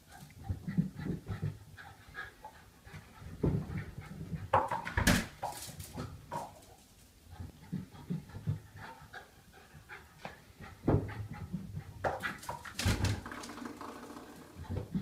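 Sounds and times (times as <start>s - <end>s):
dog panting: 0.0s - 4.8s, 7.3s - 12.8s
dog paws thumping on stairs: 2.9s - 6.8s.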